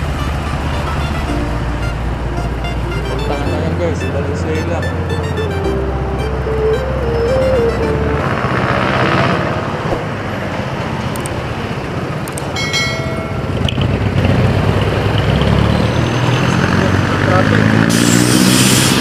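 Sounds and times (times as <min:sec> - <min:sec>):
road and traffic noise: 0:00.0 - 0:19.0
high ringing tone: 0:12.6 - 0:13.6.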